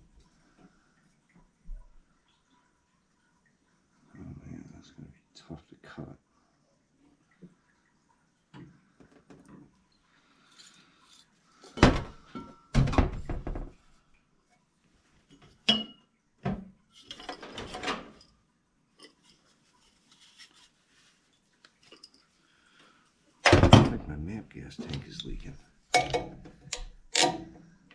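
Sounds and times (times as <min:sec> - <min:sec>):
metal tools rattling: 0:17.0 - 0:18.3
metal pipe knocking: 0:25.9 - 0:27.5.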